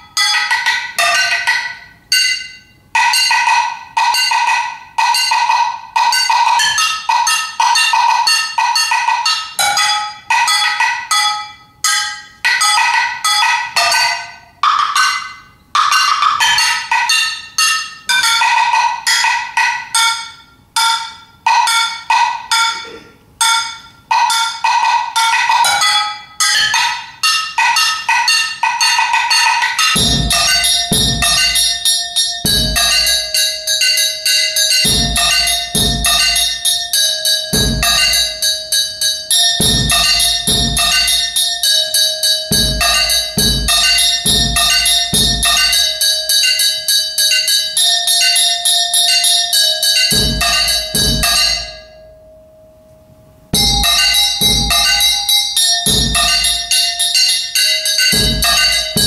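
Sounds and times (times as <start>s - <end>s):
ringing metallic clanks: 0.0s - 52.5s, 53.6s - 59.0s
bass drum thumps: 30.0s - 31.7s, 32.5s - 33.2s, 34.8s - 36.4s, 37.6s - 38.3s, 39.6s - 41.2s, 42.5s - 45.7s, 53.6s - 55.2s, 55.9s - 56.6s, 58.1s - 59.0s.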